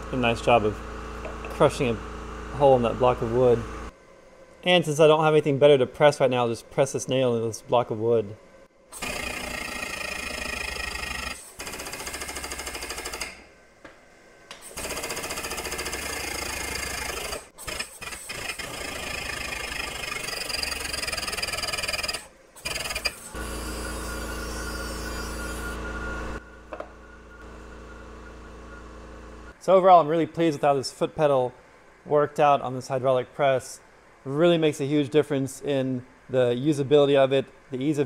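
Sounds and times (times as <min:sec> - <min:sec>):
air hydraulic pump chattering: 0:14.5 - 0:25.8.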